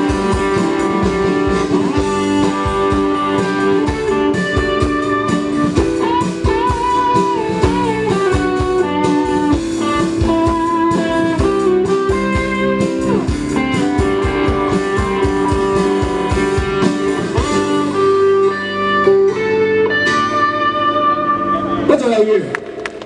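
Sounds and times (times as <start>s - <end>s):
drum beat: 0.0s - 18.0s
guitars ringing on a chord: 0.0s - 22.1s
rock band playing: 0.0s - 23.0s.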